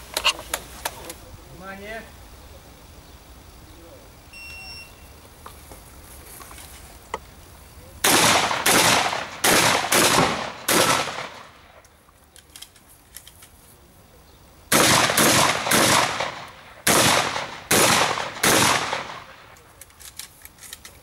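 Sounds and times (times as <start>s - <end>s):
gunshots: 8.0s - 11.8s, 14.7s - 19.6s.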